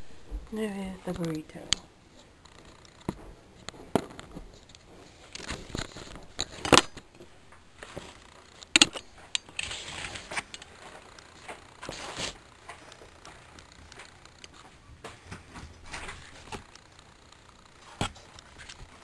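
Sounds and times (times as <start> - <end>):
paper plate rustling: 9.2 - 17.0.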